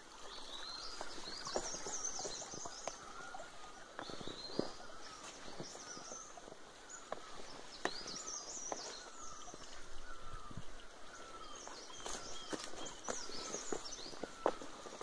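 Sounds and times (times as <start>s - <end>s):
forest birds singing: 0.0s - 15.0s
footsteps on dry leaves: 1.0s - 6.2s, 11.6s - 15.0s.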